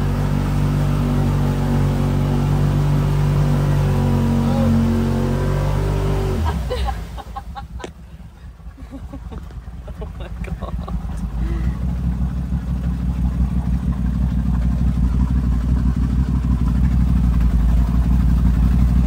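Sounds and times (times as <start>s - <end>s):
off-road vehicle engine running: 0.0s - 19.0s
engine rumble with small pops: 5.0s - 19.0s.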